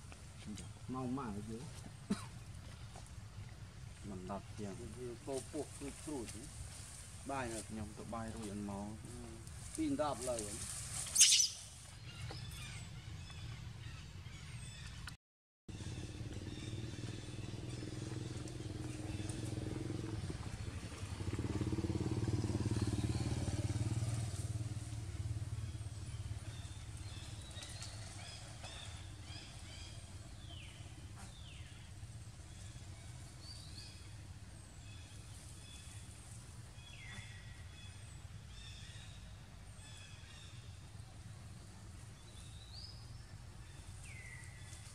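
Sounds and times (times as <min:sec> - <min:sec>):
motorbike engine passing: 0:15.7 - 0:42.2.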